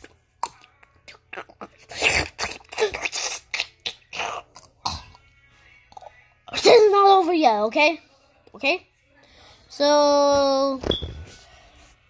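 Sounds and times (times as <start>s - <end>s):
boy making mouth pops and smacks: 0.0s - 4.7s.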